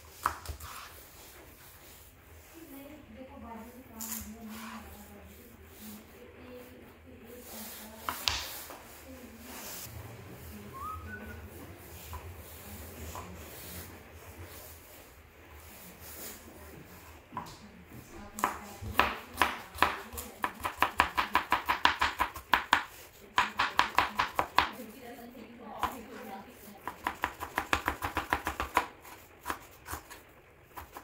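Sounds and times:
knife chopping on cutting board: 0.1s - 1.0s, 8.0s - 8.8s, 18.2s - 24.9s, 26.8s - 31.0s.

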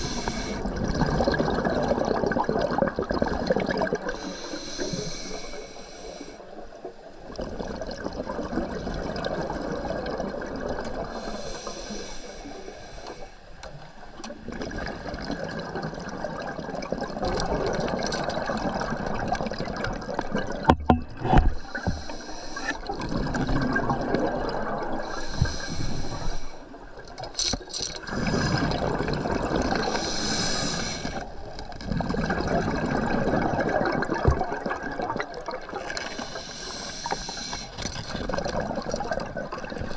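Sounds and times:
regulator breathing hiss: 0.0s - 0.6s, 4.2s - 6.5s, 11.1s - 13.5s, 21.6s - 22.8s, 25.0s - 26.7s, 29.9s - 31.3s, 36.1s - 37.8s
bubbling exhalations: 0.0s - 5.4s, 14.4s - 26.5s, 27.6s - 39.9s.

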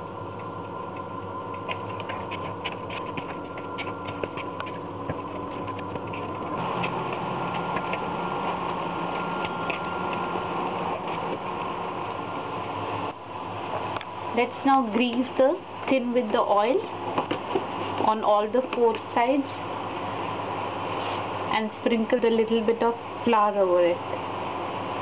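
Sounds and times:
mechanical hum: 0.0s - 25.0s
hands kneading dough in bowl: 1.6s - 12.7s.

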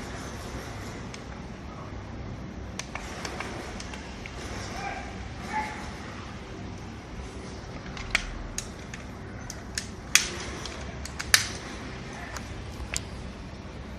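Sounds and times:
plastic housing clicks and snaps: 7.8s - 11.6s.

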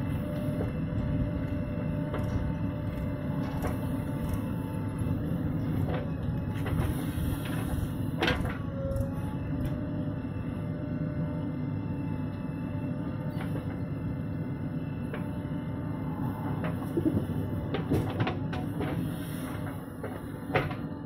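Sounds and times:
diesel engines running: 0.0s - 21.0s.

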